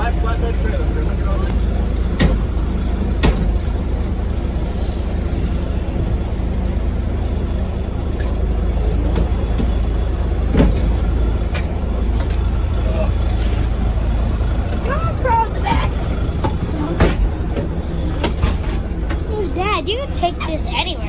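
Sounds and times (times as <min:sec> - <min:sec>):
truck engine running: 0:00.0 - 0:21.0
sharp knocks: 0:02.2 - 0:02.5, 0:03.2 - 0:03.6, 0:15.8 - 0:19.2.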